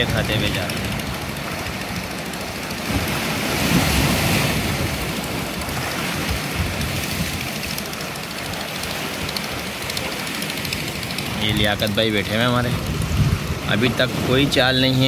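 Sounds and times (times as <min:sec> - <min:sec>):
sea waves washing ashore: 0:00.0 - 0:15.0
wind: 0:00.0 - 0:15.0.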